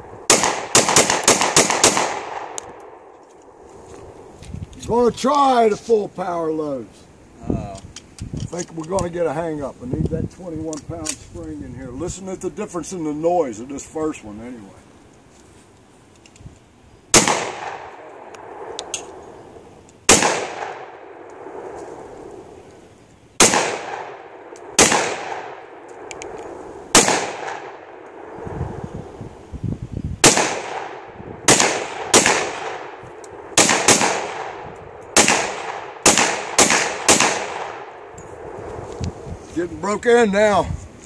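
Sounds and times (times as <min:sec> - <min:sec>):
pistol shots echoing: 0:00.2 - 0:03.1, 0:17.1 - 0:19.2, 0:20.1 - 0:21.6, 0:23.4 - 0:26.3, 0:26.9 - 0:28.3, 0:30.2 - 0:38.2.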